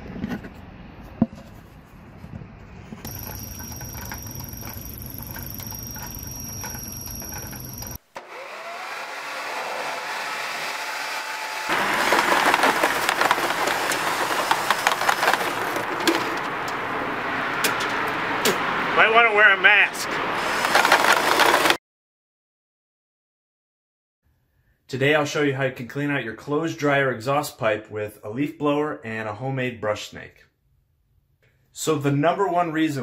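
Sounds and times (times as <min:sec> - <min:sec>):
clicks: 0:03.0 - 0:08.0
leaf blower running: 0:03.1 - 0:16.5.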